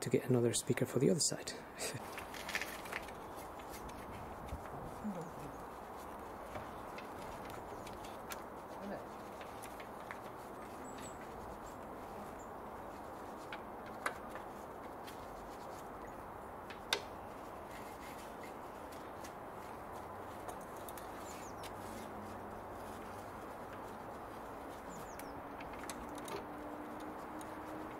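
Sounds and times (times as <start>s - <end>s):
steady background hiss: 0.0s - 27.9s.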